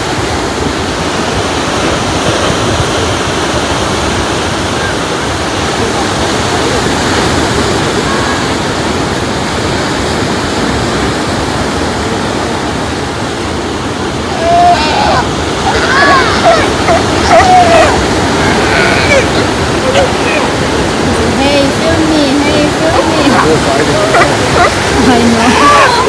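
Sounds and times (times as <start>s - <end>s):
waves breaking on rocky shore: 0.0s - 26.0s.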